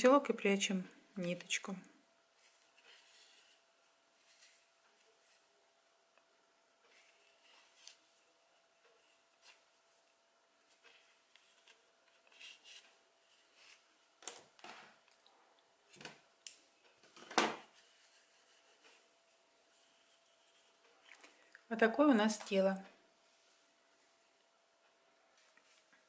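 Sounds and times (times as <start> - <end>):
hands rubbing yarn: 17.7 - 21.2.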